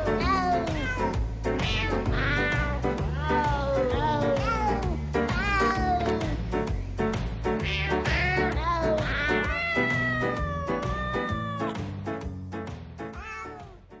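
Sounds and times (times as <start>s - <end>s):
music with a steady beat: 0.0s - 14.0s
cat meowing: 0.2s - 6.0s, 7.6s - 11.8s, 13.1s - 13.8s.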